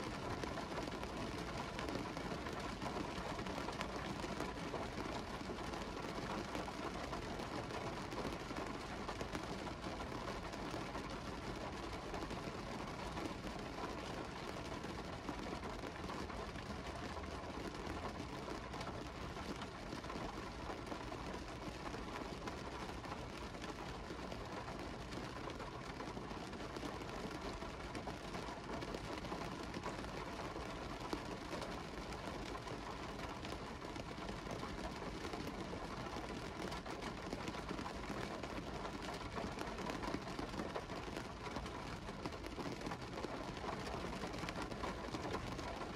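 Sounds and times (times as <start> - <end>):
rain falling on car window: 0.0 - 45.9.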